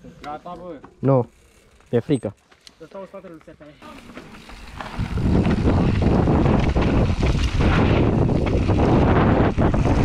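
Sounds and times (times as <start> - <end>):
bike tyre roar: 3.8 - 10.0
wind on microphone: 4.7 - 10.0.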